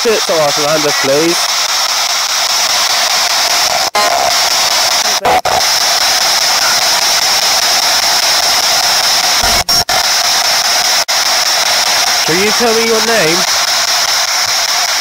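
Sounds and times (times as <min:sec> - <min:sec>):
radio static hiss: 0:00.0 - 0:15.0
snatches of broadcast sound: 0:00.0 - 0:15.0.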